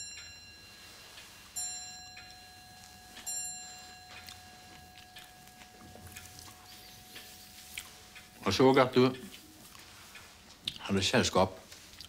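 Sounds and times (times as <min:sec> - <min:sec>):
bell-like chime ringing: 0:00.0 - 0:09.3.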